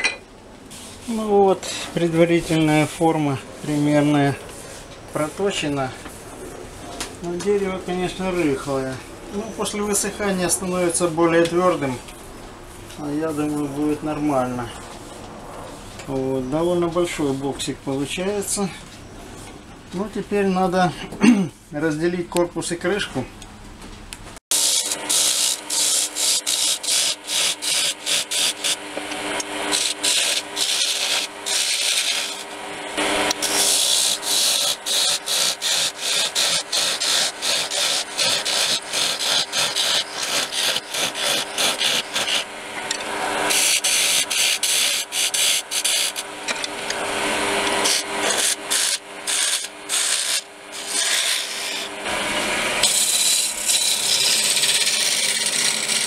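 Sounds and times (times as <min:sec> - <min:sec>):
lathe tool scraping wood: 0:00.7 - 0:06.4, 0:24.5 - 0:56.0
lathe motor hum: 0:24.6 - 0:56.0.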